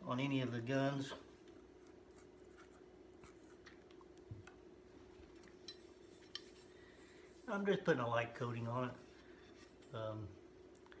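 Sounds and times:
cloth rubbing on steel barrel: 5.7 - 9.9.

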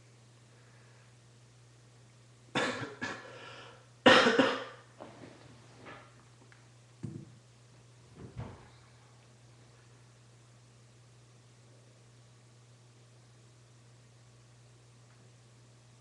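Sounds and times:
faint low hum: 0.0 - 16.0
person coughing: 2.6 - 3.4, 4.0 - 4.9.

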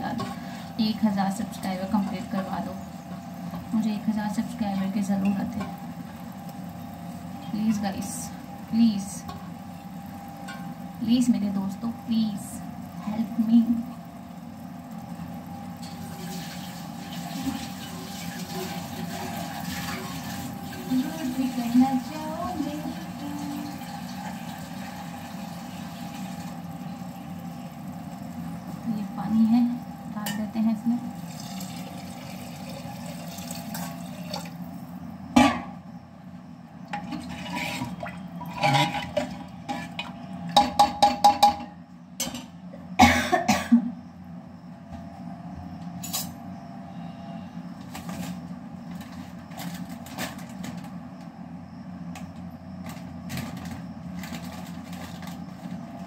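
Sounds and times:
steady low hum: 0.0 - 56.0
metal pots and utensils clinking: 37.0 - 42.5.

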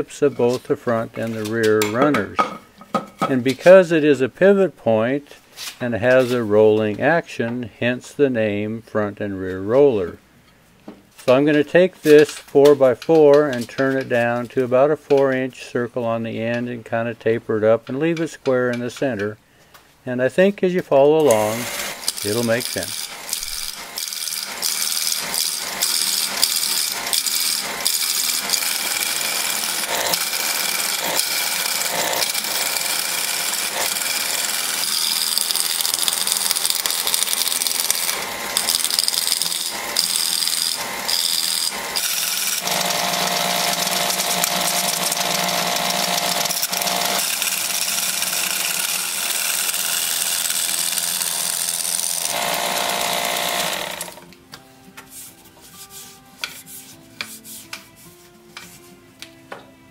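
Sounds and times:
wood lathe chisel cutting: 21.2 - 54.3
lathe hum: 21.3 - 54.2.

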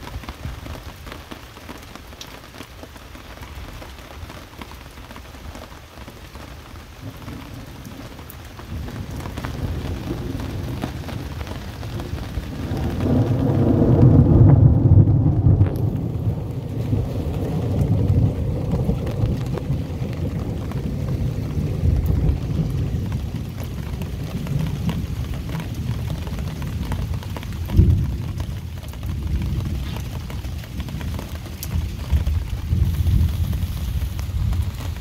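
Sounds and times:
heavy rain: 0.0 - 35.0
thunder rumbling: 7.0 - 35.0
thunder boom: 12.0 - 23.3, 27.7 - 28.2.

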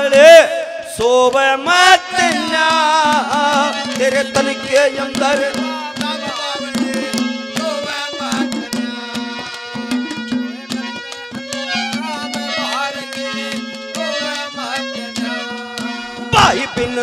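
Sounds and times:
hand drum playing quick rhythm: 2.2 - 17.0
melody instrument holding notes: 6.6 - 16.6.

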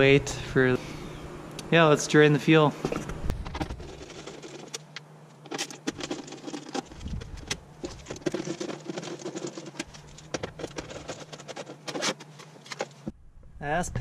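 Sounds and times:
screwdriver clicks and metal scrapes: 2.9 - 13.0.

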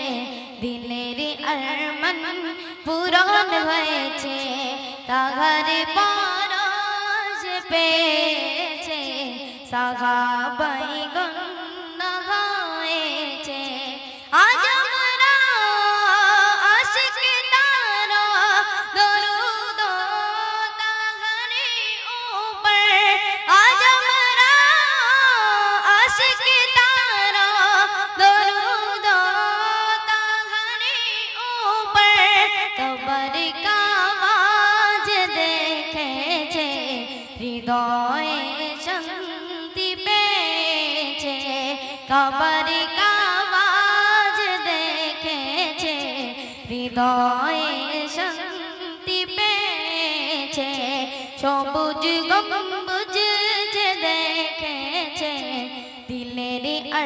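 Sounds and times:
boy singing into a microphone: 0.0 - 57.0.

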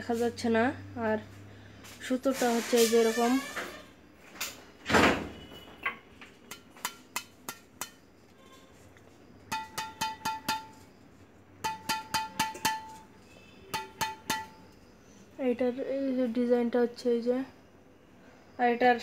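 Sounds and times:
taps on racket strings: 6.5 - 8.1, 9.5 - 10.9, 11.6 - 13.1, 13.7 - 14.8.

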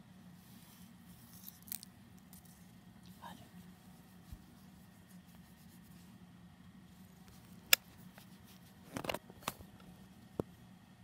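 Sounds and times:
cat rubbing handling noise: 2.4 - 6.2.

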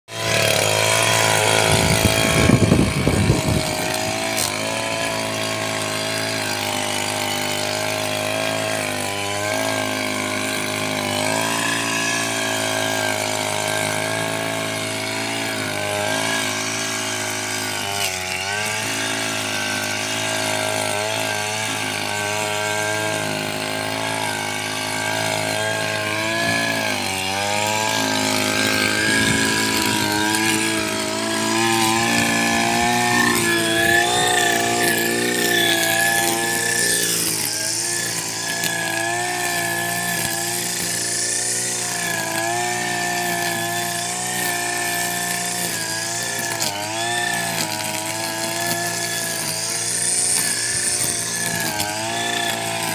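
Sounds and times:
brush cutter engine running: 0.0 - 52.9
trimmer cutting grass: 0.0 - 52.9.

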